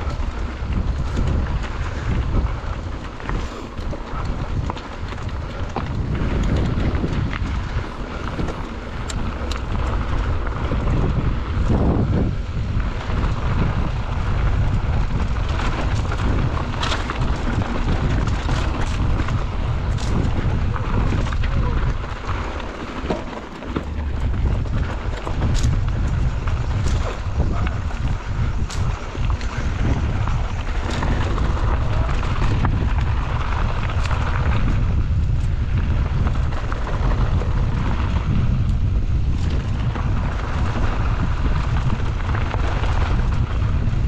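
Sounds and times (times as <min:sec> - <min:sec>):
bike rattling clicks and knocks: 0:00.0 - 0:44.0
bike tyres rumbling on dirt: 0:00.0 - 0:44.0
wind buffeting microphone: 0:00.0 - 0:44.0.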